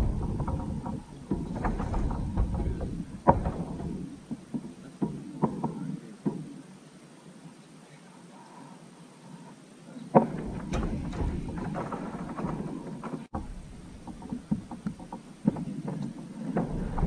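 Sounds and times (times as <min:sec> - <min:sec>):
low rumble: 0:00.0 - 0:04.8, 0:10.4 - 0:14.8
plastic kayak knocks and clicks: 0:00.0 - 0:06.4, 0:10.2 - 0:17.0.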